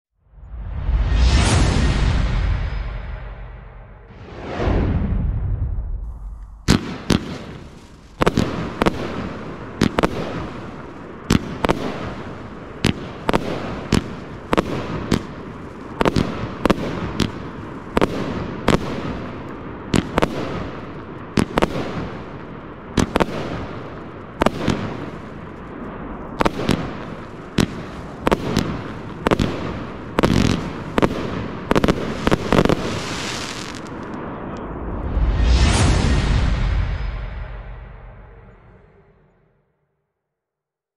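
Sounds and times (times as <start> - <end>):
fireworks bursting with hiss: 6.2 - 34.2.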